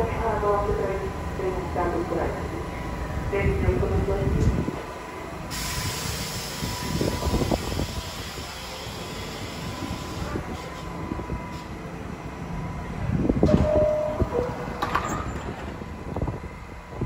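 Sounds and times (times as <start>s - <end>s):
train equipment humming: 0.0s - 17.0s
doors closing knocks: 13.4s - 15.8s
two-tone door chime: 13.5s - 15.5s.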